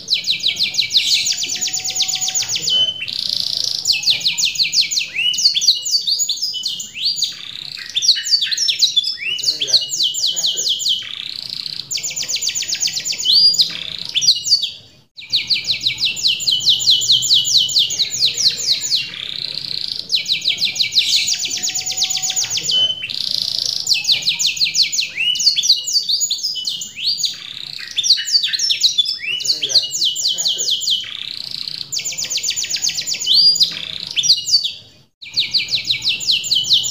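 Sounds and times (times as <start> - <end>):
canary singing trills: 0.0 - 36.9.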